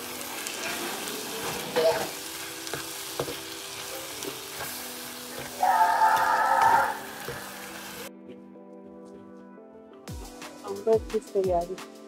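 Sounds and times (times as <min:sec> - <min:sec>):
vegetables sizzling in a frying pan: 0:00.0 - 0:08.1.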